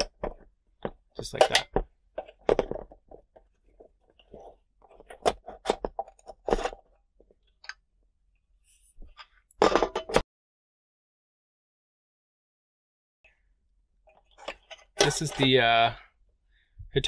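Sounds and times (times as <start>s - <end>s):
metal cover clattering: 1.2s - 3.0s, 9.6s - 10.2s, 14.3s - 15.6s
metal cover scraping plastic frame: 14.3s - 15.7s.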